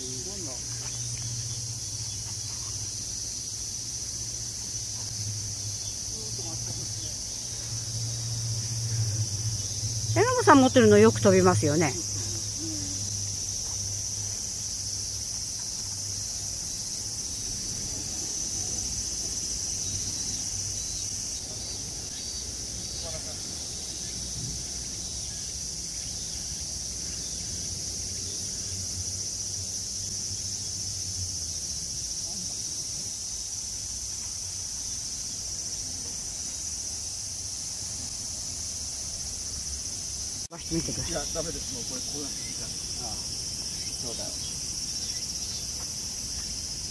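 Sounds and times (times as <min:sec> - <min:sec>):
insects trilling: 0:00.0 - 0:46.9
faint low hum: 0:04.9 - 0:14.4.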